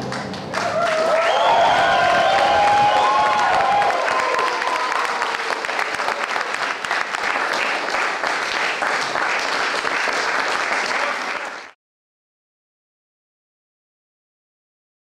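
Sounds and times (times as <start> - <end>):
crowd applauding: 0.0 - 11.8.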